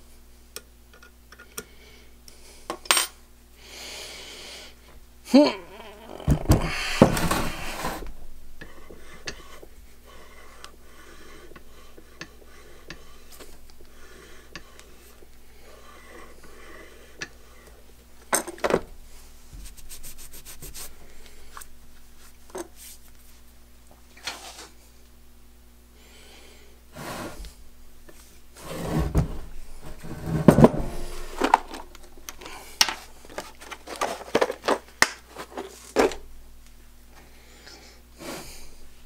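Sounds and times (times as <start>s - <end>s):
metal scraping on wooden bench: 6.6s - 17.9s, 28.6s - 31.9s.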